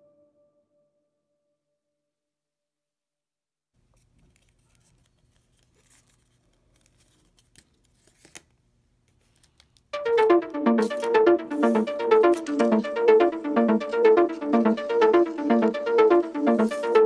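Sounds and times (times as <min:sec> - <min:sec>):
paper rustling and crinkling: 0:03.8 - 0:09.8
loud electronic music with beat: 0:10.0 - 0:17.0.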